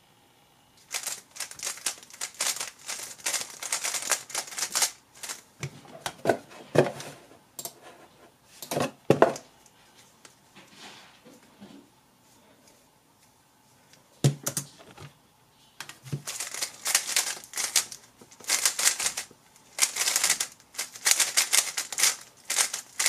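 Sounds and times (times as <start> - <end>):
speed cube turning clicks: 0.9 - 5.4, 16.3 - 23.0.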